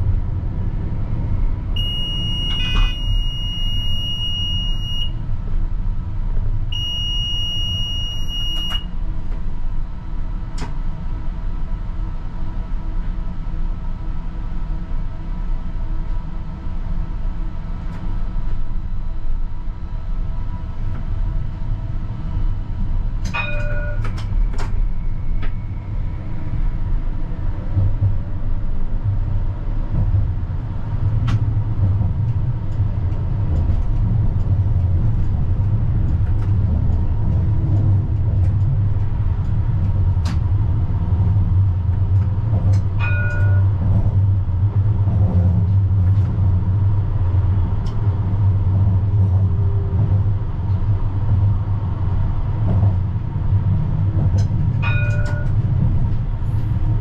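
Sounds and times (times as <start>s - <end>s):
tram wheels rumbling on rails: 0.0s - 6.9s, 8.6s - 57.0s
tram bell ringing: 23.3s - 24.4s, 43.0s - 44.2s, 54.8s - 55.8s.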